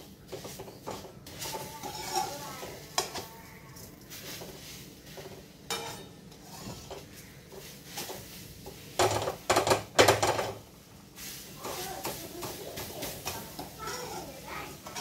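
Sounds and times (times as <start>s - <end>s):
ladle scraping metal pan: 0.4s - 3.3s, 4.2s - 9.4s, 11.2s - 15.0s.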